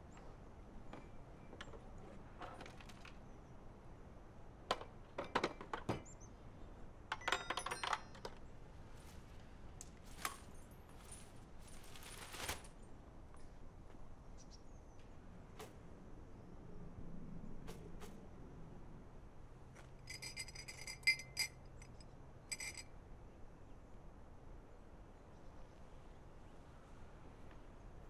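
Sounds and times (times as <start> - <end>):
dishes and glassware clinking: 20.0 - 22.9.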